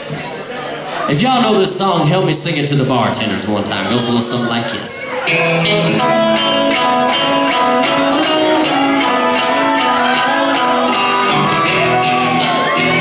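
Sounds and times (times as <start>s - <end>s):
electric guitars: 3.7s - 13.0s.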